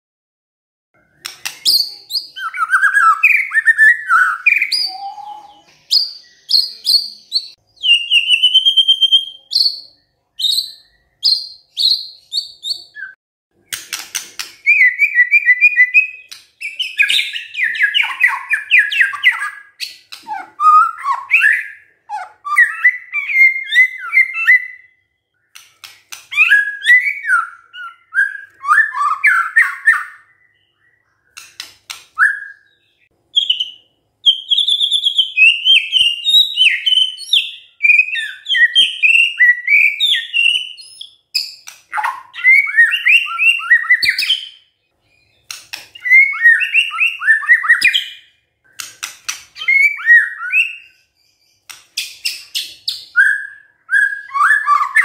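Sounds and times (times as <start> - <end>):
songbird whistling and trilling: 1.1 - 55.0
sharp clicks: 1.2 - 1.8, 13.7 - 14.7, 25.5 - 26.3, 31.3 - 32.2, 45.4 - 46.0, 48.7 - 49.6, 51.6 - 53.0.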